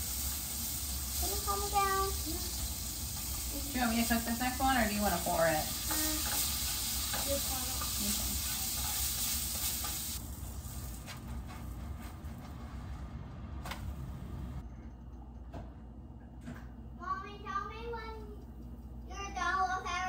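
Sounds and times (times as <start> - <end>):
batter sizzling in frying pan: 0.0 - 11.9.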